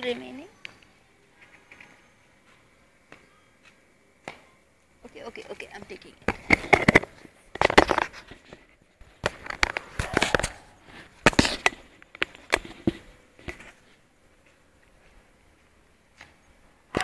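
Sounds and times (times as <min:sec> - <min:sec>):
handling clicks and knocks: 0:05.9 - 0:13.7.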